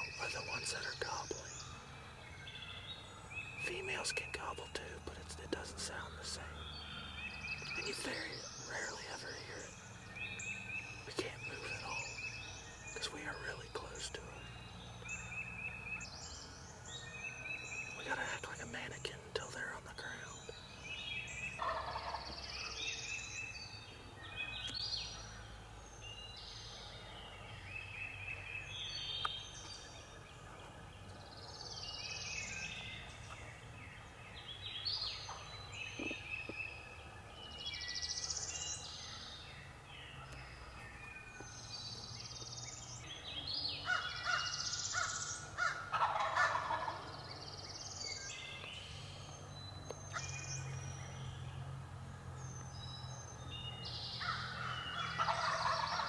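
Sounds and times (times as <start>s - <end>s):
songbirds chorus: 0.0s - 56.0s
turkey gobbling: 21.6s - 22.2s, 45.6s - 47.0s, 55.2s - 56.0s.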